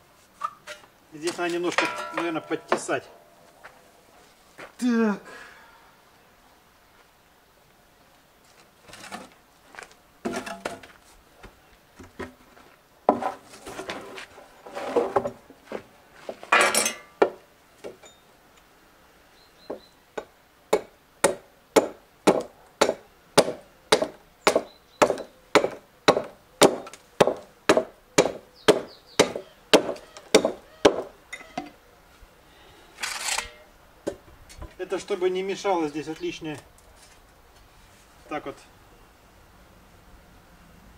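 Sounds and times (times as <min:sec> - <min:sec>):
wood scraping: 0:08.5 - 0:11.2, 0:12.0 - 0:16.7
hatchet chopping wood: 0:20.2 - 0:31.1.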